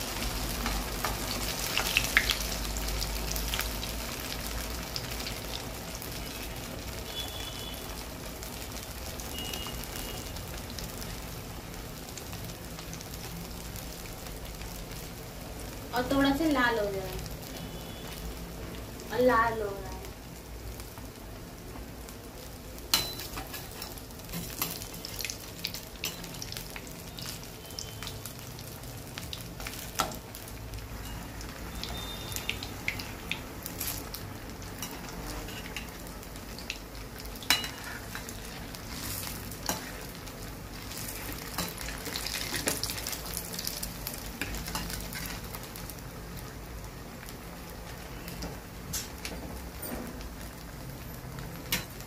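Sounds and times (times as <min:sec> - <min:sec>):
oil sizzling and crackling: 0:00.0 - 0:52.0
metal spoon clinking on pan: 0:22.9 - 0:24.8, 0:26.0 - 0:26.4, 0:37.5 - 0:38.3.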